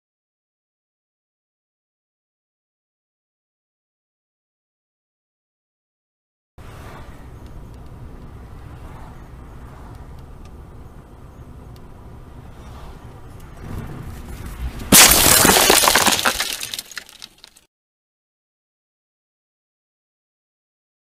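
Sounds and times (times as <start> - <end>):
road noise inside car: 6.6 - 15.0
car crash: 13.6 - 17.6
debris clattering: 14.4 - 17.6.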